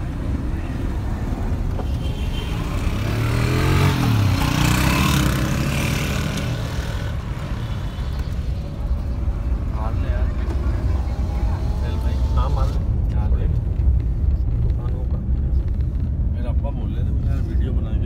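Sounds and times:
car road rumble: 0.0 - 18.0
motorcycle engine passing: 2.8 - 7.6.

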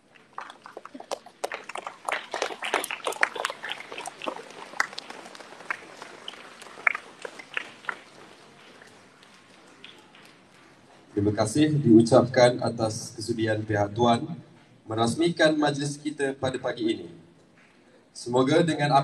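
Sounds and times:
pupils clapping: 0.0 - 11.3.

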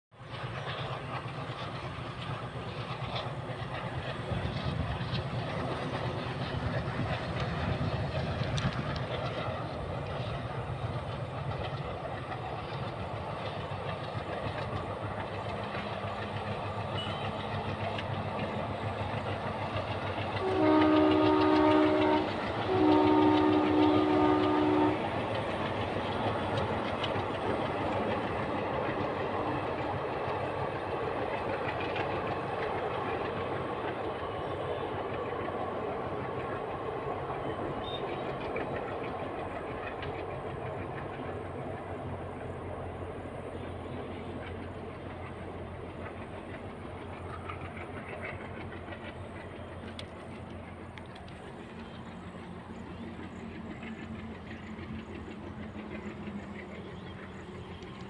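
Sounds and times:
train rumbling on rails: 0.1 - 58.0
train horn blasts: 20.4 - 25.1.

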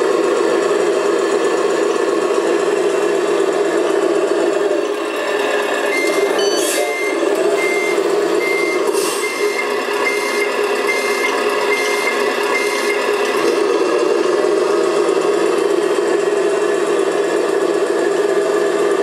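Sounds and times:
steady mechanical hum: 0.0 - 19.0
reversing beeps: 5.9 - 13.1.

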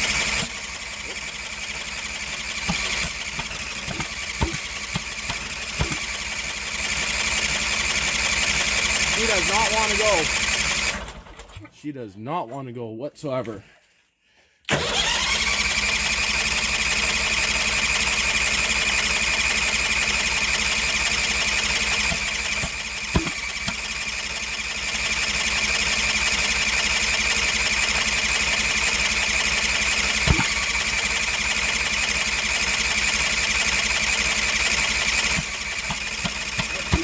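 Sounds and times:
electric starter cranking engine: 0.0 - 11.6, 14.7 - 37.0.

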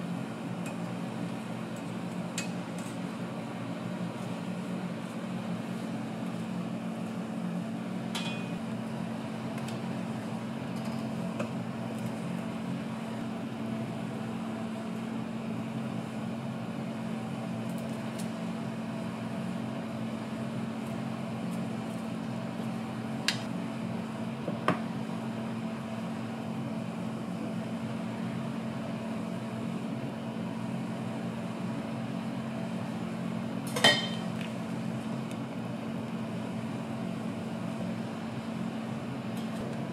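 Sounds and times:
low equipment hum: 0.0 - 39.9.

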